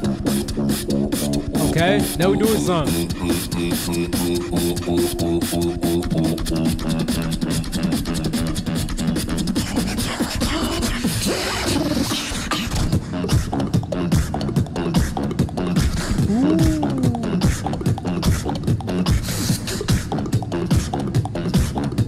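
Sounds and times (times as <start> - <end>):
beatboxing beat: 0.0 - 22.0
low bass tone: 16.2 - 17.7.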